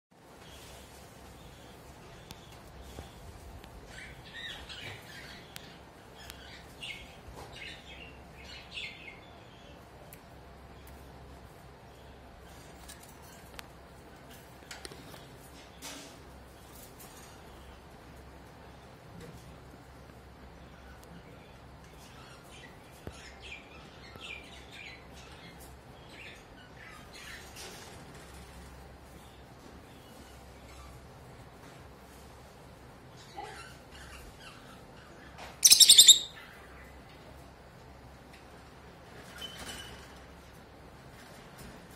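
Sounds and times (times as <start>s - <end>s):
lovebirds chirping: 33.2s - 37.0s.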